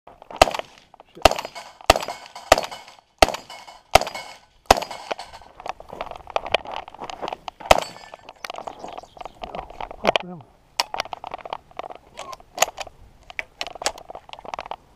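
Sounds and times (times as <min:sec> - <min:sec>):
spent shells ejecting: 0:00.3 - 0:05.7, 0:07.5 - 0:09.4
shotgun shots: 0:00.4 - 0:05.5.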